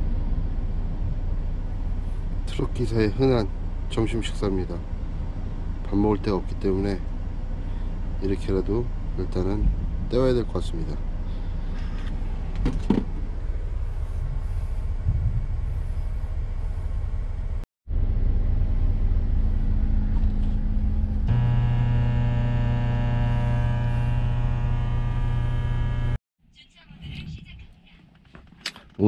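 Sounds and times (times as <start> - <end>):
microwave oven humming: 17.9 - 26.2.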